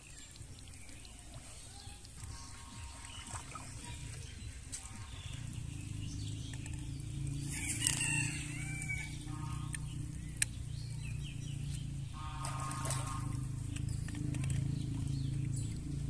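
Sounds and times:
steady low hum: 0:00.0 - 0:16.0
rooster crowing: 0:07.5 - 0:09.2.

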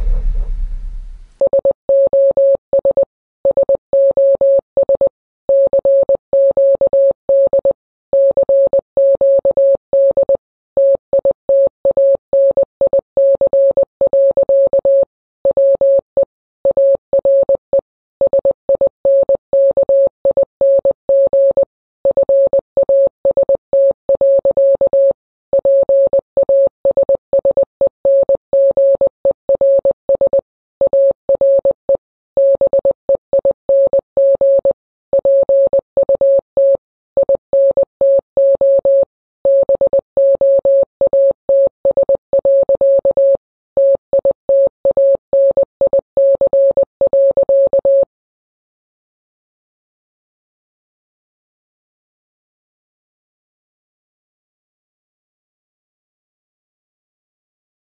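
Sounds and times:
morse code beeps: 0:29.6 - 0:48.1.

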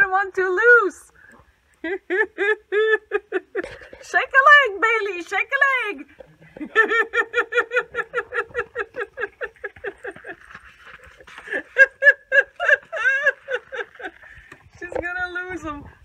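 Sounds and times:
person laughing: 0:01.8 - 0:04.0, 0:06.4 - 0:14.4.

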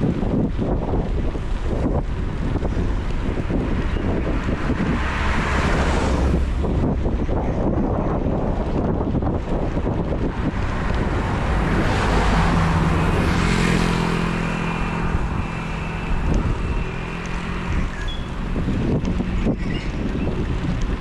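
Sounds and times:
car passing: 0:00.0 - 0:21.0
low engine hum: 0:00.0 - 0:21.0
wind rushing over microphone: 0:00.0 - 0:21.0.

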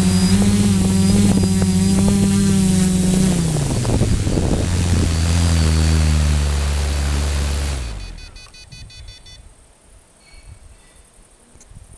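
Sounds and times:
drone motors and propellers humming: 0:00.0 - 0:08.8.

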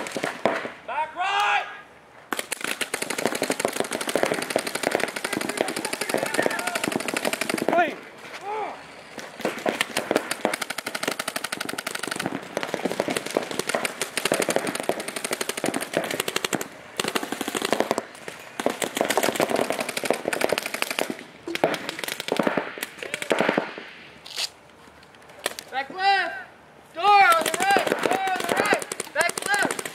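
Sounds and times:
paintball guns firing: 0:00.0 - 0:00.8, 0:02.3 - 0:08.0, 0:09.4 - 0:24.0, 0:27.0 - 0:29.9.

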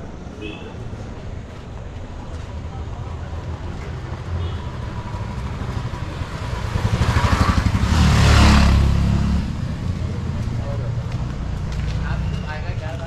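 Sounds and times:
low rumble of traffic: 0:00.0 - 0:13.0
vehicle passing close by: 0:04.8 - 0:10.5.

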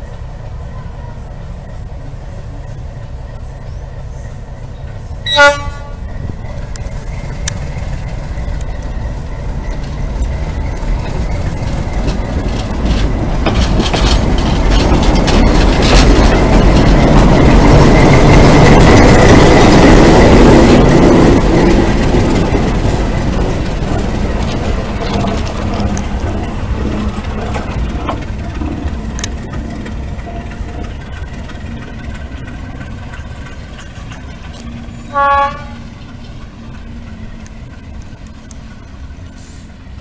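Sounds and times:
locomotive engine running: 0:00.0 - 0:40.0
train wheels clicking over rail joints: 0:01.6 - 0:40.0
locomotive horn toot: 0:05.2 - 0:06.2, 0:35.0 - 0:36.0.

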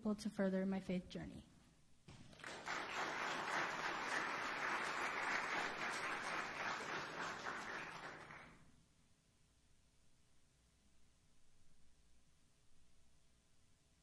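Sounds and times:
crowd applauding: 0:02.2 - 0:08.6.

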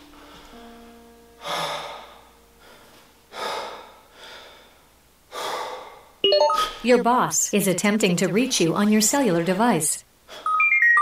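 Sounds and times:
man breathing hard: 0:01.4 - 0:06.2.

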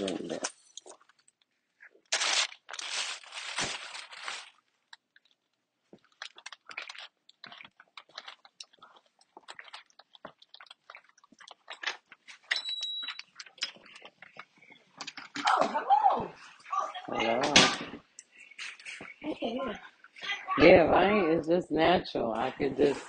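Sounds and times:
small clicks and crackles: 0:00.0 - 0:15.6.

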